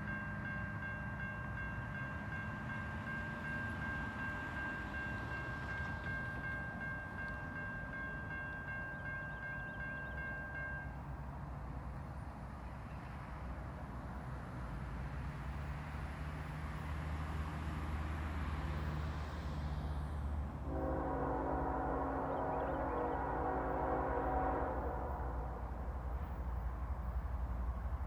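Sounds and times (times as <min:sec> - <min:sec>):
distant train horn: 0:20.5 - 0:26.5.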